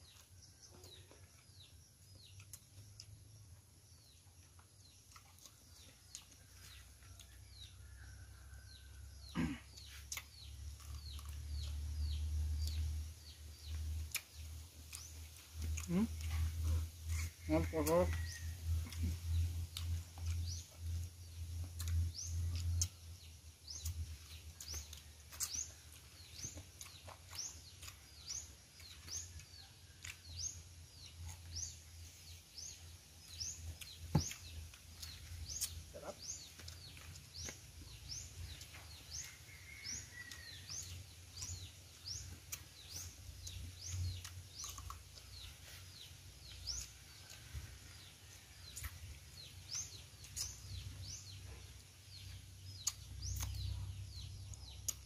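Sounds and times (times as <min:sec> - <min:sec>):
bird chirping: 0:00.0 - 0:55.0.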